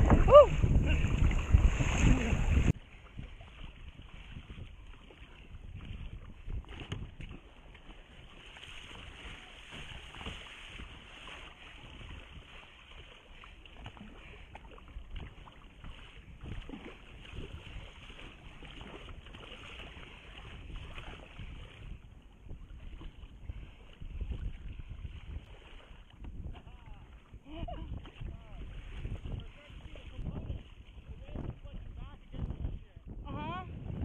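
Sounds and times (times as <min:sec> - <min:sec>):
water rushing along kayak hull: 0:00.0 - 0:34.0
wind buffeting microphone: 0:00.0 - 0:34.0.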